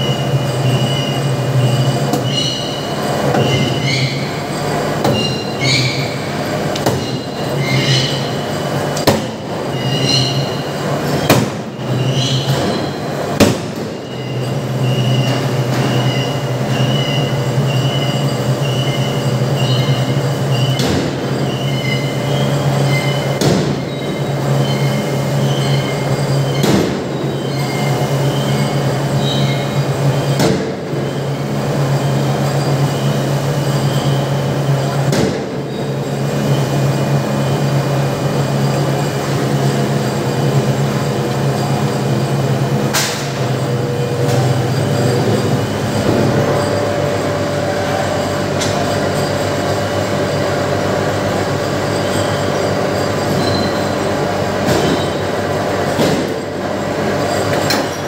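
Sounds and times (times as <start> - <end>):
high-pitched squealing tones: 0.0 - 8.8
low machinery hum: 0.0 - 58.0.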